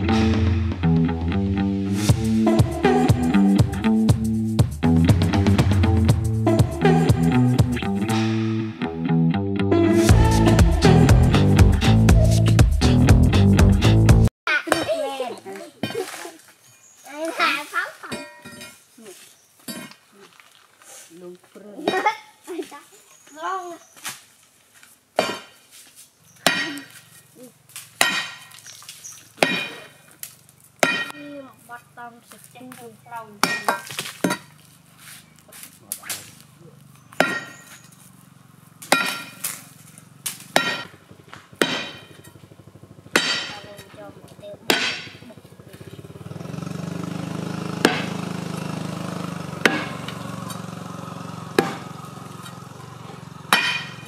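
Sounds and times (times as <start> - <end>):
metal bar striking rock: 18.0 - 18.8, 25.2 - 25.6, 26.4 - 27.1, 28.0 - 28.6, 29.4 - 30.1, 30.8 - 31.4, 33.4 - 34.6, 37.0 - 38.0, 38.8 - 46.1, 47.7 - 54.0
low engine hum: 34.5 - 54.0.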